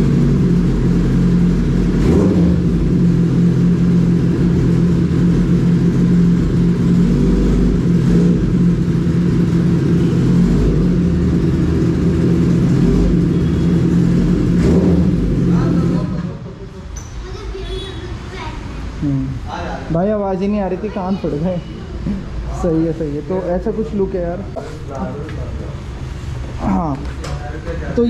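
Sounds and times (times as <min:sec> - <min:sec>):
motorcycle engine idling and revving: 0:00.0 - 0:17.0.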